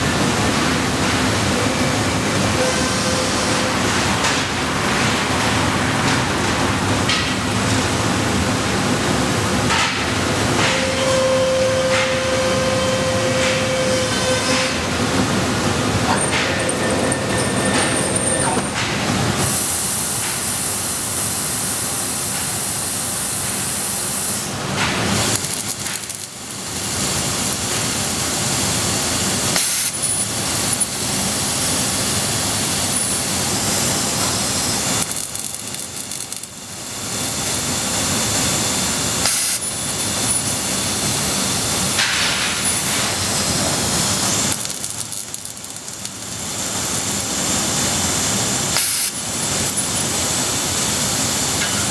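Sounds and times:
laser cutter jet hissing: 0:00.8 - 0:04.6, 0:19.4 - 0:51.9.

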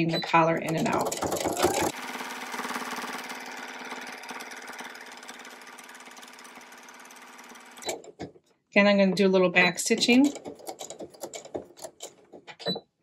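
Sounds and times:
electric sewing machine running: 0:00.7 - 0:08.0.

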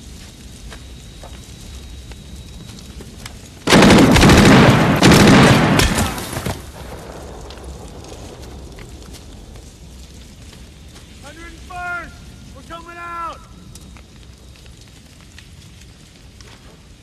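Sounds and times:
rapid gunfire: 0:03.7 - 0:06.6
explosion: 0:03.7 - 0:08.8.

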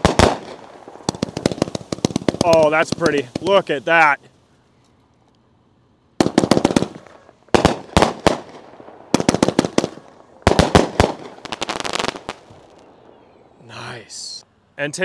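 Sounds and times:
firework shells cracking: 0:00.0 - 0:03.7, 0:06.2 - 0:13.0
firework crackle: 0:00.0 - 0:04.1, 0:06.2 - 0:13.1.

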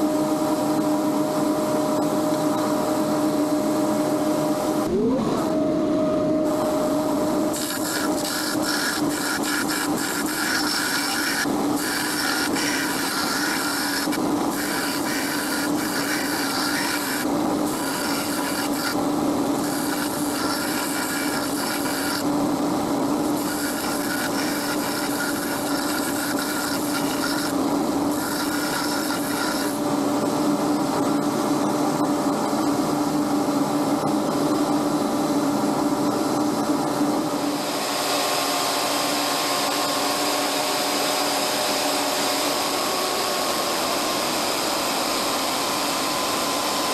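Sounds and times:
machine hum: 0:00.0 - 0:46.9
belt sander grinding metal: 0:06.4 - 0:29.9.

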